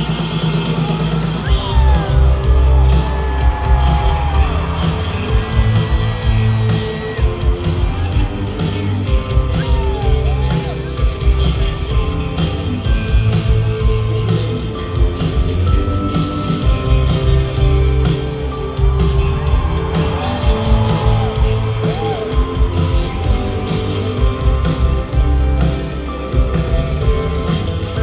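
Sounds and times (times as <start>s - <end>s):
drum kit steady beat: 0.0s - 28.0s
live rock band playing: 0.0s - 28.0s.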